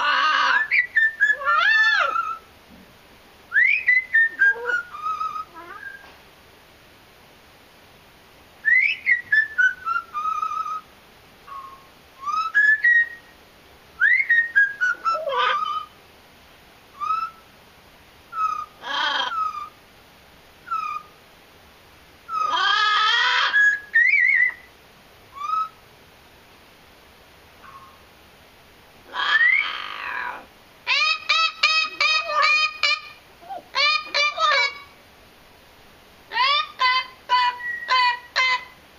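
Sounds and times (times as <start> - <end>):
parrot rough calls: 0.0 - 2.4, 14.8 - 16.0, 18.3 - 19.8, 22.3 - 24.6, 29.0 - 35.0, 36.3 - 38.8
parrot whistling: 0.0 - 2.4, 3.5 - 6.1, 8.6 - 10.8, 11.5 - 13.3, 14.0 - 15.9, 17.0 - 17.4, 18.3 - 19.8, 20.6 - 21.1, 22.3 - 24.7, 25.3 - 25.8, 27.6 - 28.0, 29.1 - 34.9, 36.3 - 38.8.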